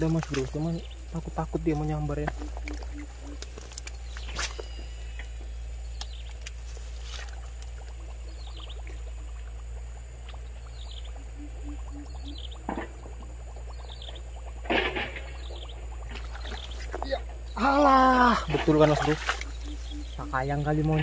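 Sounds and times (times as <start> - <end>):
high outdoor hiss: 0.0 - 21.0
water splashes: 0.0 - 21.0.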